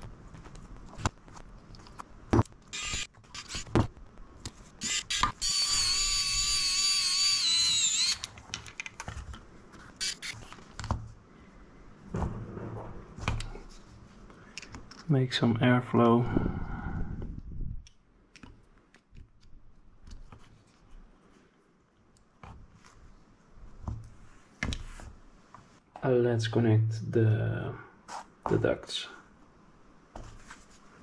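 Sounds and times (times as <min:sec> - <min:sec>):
electric screwdriver whirring: 0:02.8 - 0:03.7, 0:04.8 - 0:08.3, 0:10.0 - 0:10.4.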